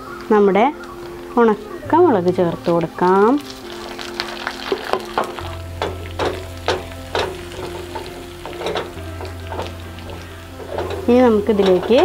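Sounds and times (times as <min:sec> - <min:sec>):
food sizzling in hot oil: 0:00.0 - 0:12.0
spoon scraping a pan: 0:04.5 - 0:12.0.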